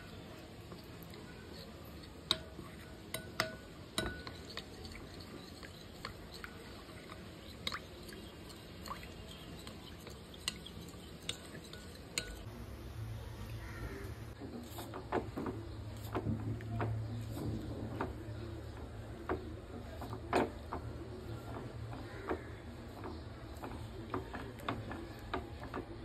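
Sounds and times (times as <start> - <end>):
spoon stirring slurry in bowl: 0.1 - 12.5, 14.3 - 26.0
spoon clinking against bowl: 2.3 - 12.5.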